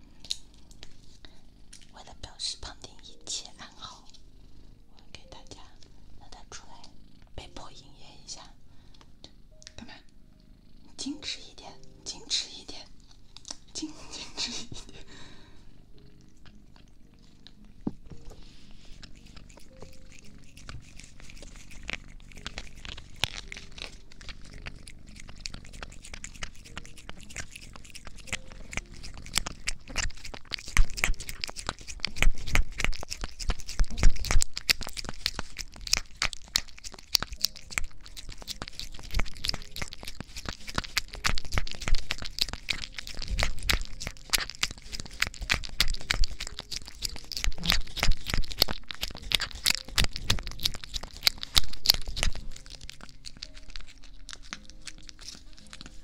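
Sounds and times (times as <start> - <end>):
cat fur scratching on microphone: 18.1 - 37.6.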